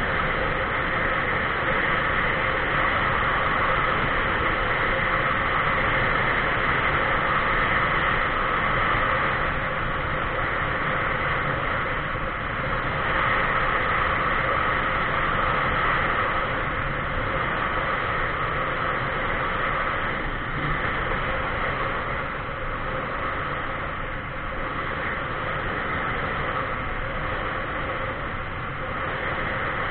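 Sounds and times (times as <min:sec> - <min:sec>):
faint steady hum: 0:00.0 - 0:29.9
wind and road noise: 0:00.0 - 0:29.9.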